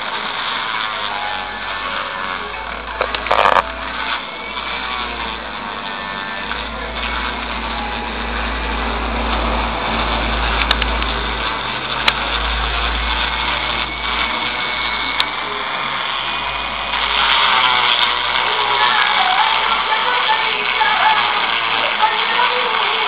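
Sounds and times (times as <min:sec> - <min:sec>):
power tool running: 0:00.0 - 0:23.0
sharp clicks: 0:03.0 - 0:03.7.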